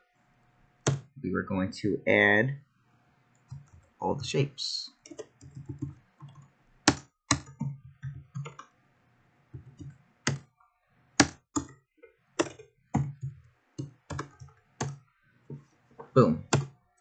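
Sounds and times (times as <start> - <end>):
computer keyboard typing: 0.9 - 1.1, 5.0 - 8.6, 9.6 - 10.5, 11.2 - 11.8, 12.4 - 15.0, 16.4 - 17.0.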